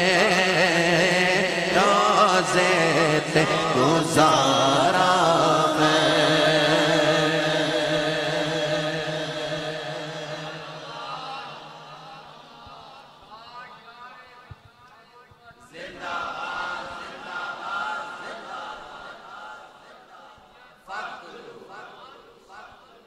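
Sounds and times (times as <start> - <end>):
man singing: 0.0 - 15.8.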